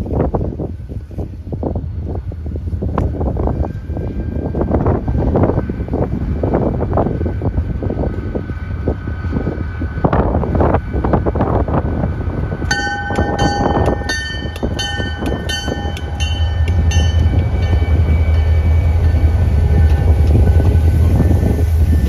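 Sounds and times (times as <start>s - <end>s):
diesel engine rumble: 0.0s - 22.0s
train cars rolling past: 0.0s - 22.0s
locomotive bell ringing: 12.7s - 22.0s.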